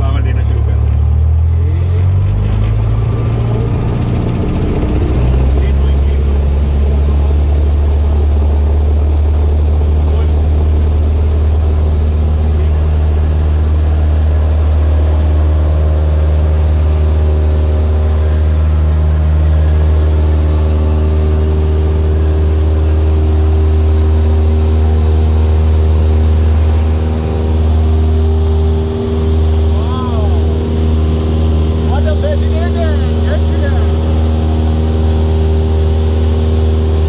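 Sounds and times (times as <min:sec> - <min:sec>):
airplane engine and propeller drone: 0:00.0 - 0:37.0.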